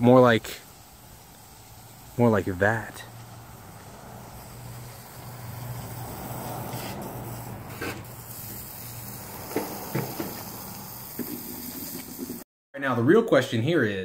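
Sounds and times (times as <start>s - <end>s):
outdoor background noise: 0.0s - 12.4s.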